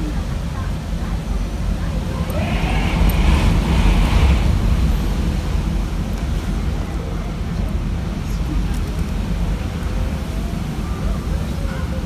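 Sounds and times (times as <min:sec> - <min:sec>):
wind buffeting microphone: 0:00.0 - 0:12.0
wind gusting: 0:01.6 - 0:10.8.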